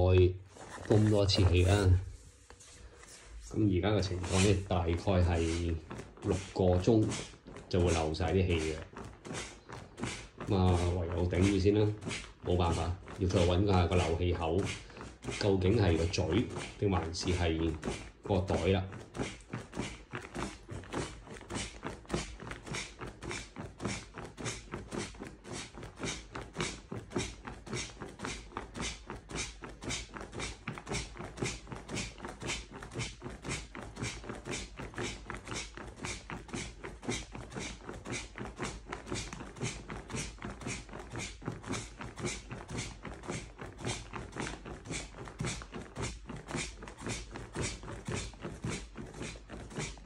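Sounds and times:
foot pump pressing air: 0.0s - 50.0s
fabric crinkling: 0.4s - 13.5s.

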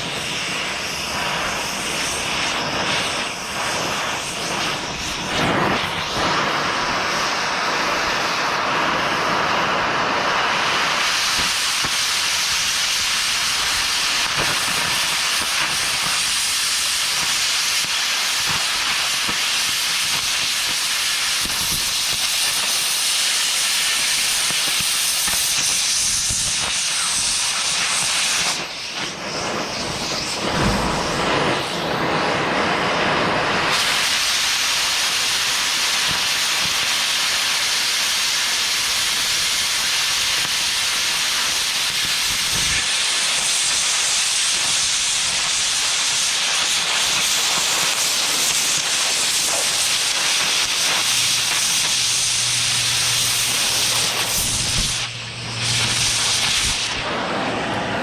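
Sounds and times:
cutting torch hissing: 0.0s - 58.0s
low thumps: 30.4s - 31.5s.

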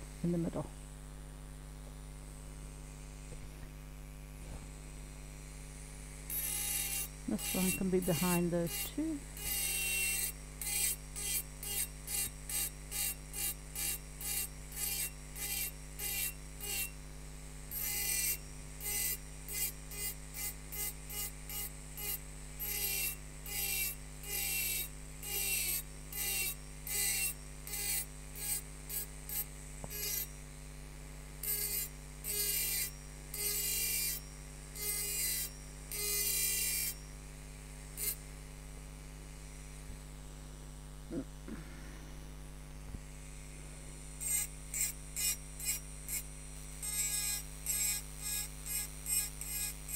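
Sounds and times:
engraving tool motor humming: 0.0s - 49.9s
engraving burr grinding glass: 6.2s - 17.0s, 17.6s - 30.7s, 31.4s - 38.3s, 43.1s - 49.9s.

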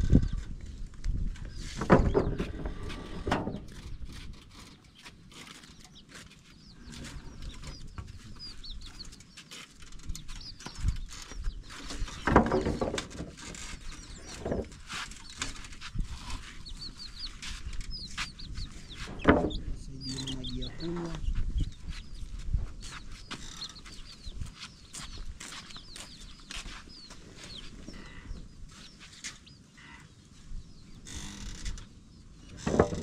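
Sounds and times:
chicks peeping: 1.4s - 32.6s
wooden poles knocking: 1.6s - 4.6s, 11.8s - 16.4s, 19.0s - 21.2s, 32.6s - 33.0s.

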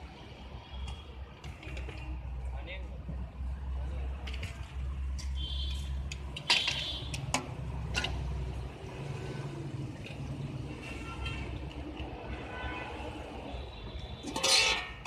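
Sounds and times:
street traffic rumble: 0.0s - 15.0s
metal spoon clinking on pots: 14.2s - 15.0s.

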